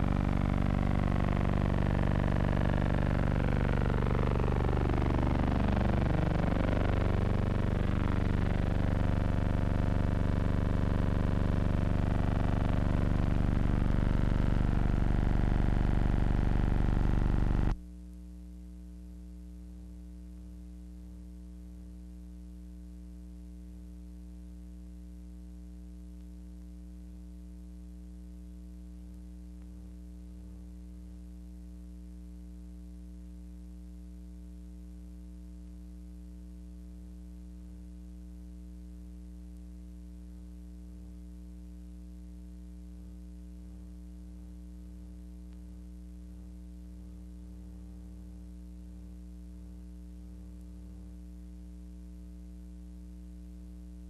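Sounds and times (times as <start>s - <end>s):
aircraft engine drone: 0.0s - 17.8s
steady electrical hum: 0.0s - 54.0s.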